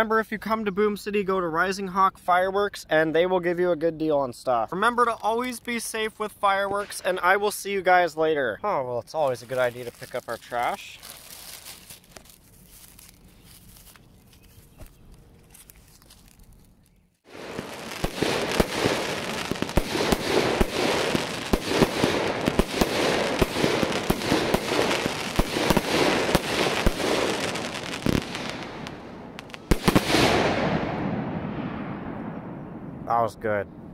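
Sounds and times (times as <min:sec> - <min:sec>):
fireworks crackling and popping: 0:05.0 - 0:07.7, 0:09.2 - 0:14.9, 0:15.5 - 0:31.8.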